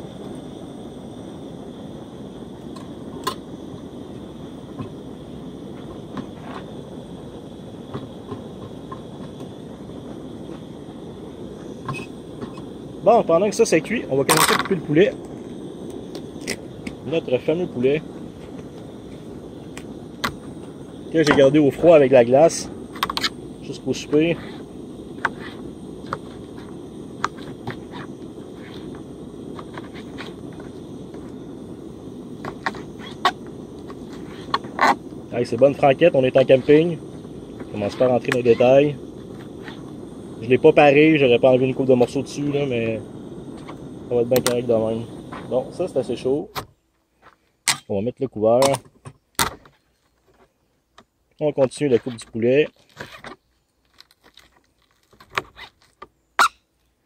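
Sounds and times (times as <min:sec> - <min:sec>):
rice simmering in a pot: 0:00.0 - 0:43.0
gas stove burning: 0:00.0 - 0:46.8.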